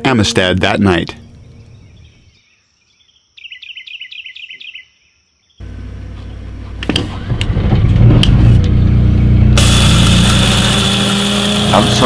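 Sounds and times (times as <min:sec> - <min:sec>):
bird chirping: 0:00.7 - 0:05.6
generator engine hum: 0:05.6 - 0:12.0.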